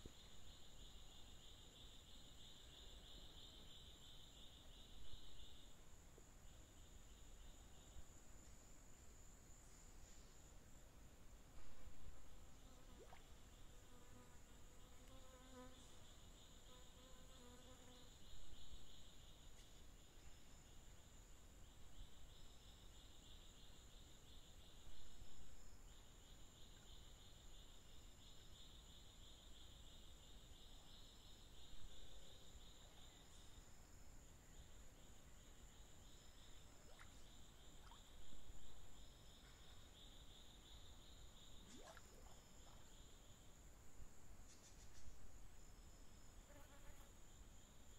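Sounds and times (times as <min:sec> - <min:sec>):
insect buzzing: 0:12.5 - 0:19.4, 0:45.8 - 0:47.9.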